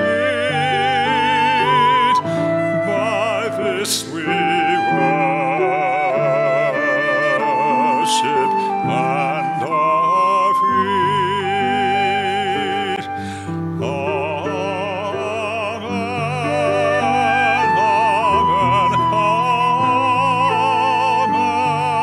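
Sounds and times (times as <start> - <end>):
solo voice singing a hymn: 0.0 - 22.0
singer breathing: 2.2 - 2.5, 13.1 - 13.8.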